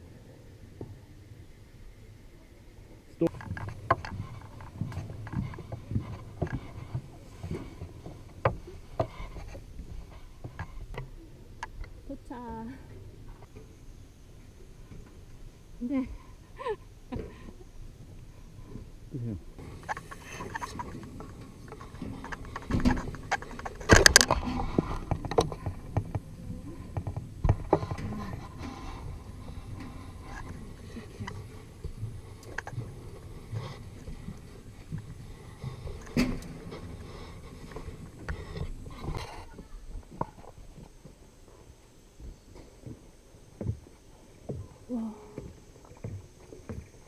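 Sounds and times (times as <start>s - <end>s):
footsteps on metal walkway: 3.2s - 11.1s, 19.6s - 47.0s.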